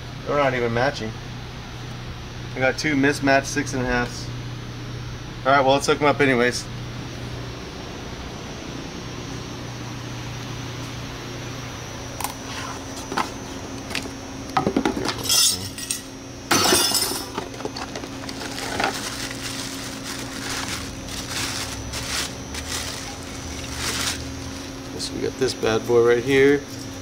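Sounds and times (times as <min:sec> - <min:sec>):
steady low hum: 0:00.0 - 0:27.0
plastic bag crinkling: 0:17.5 - 0:24.9.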